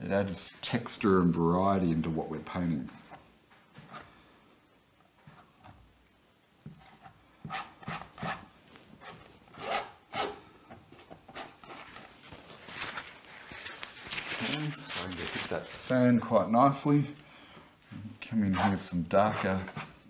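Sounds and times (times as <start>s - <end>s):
palette knife scraping canvas: 18.5s - 20.0s.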